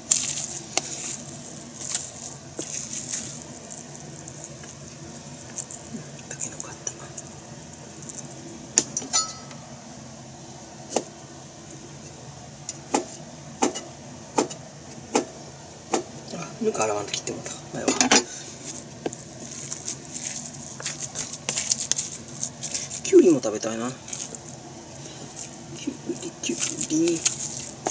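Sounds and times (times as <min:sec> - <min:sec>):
hands rustling through bran: 0:00.0 - 0:08.6, 0:18.4 - 0:27.9.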